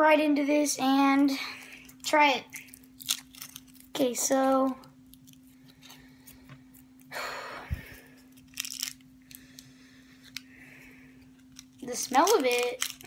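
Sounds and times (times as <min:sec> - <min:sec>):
steady low hum: 0:00.0 - 0:13.0
candy wrapper crinkling: 0:01.6 - 0:07.1, 0:08.0 - 0:10.5, 0:11.2 - 0:13.0.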